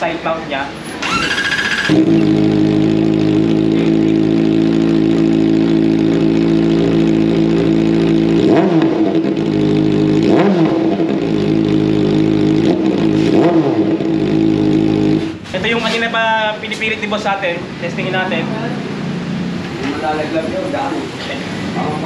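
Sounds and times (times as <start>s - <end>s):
motorcycle engine revving: 0.8s - 16.0s, 16.6s - 22.0s
motorcycle engine idling: 0.9s - 10.3s.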